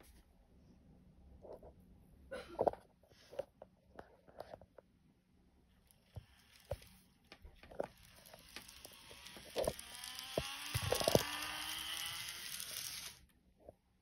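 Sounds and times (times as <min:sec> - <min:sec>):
model train motor whine: 0:07.7 - 0:13.3.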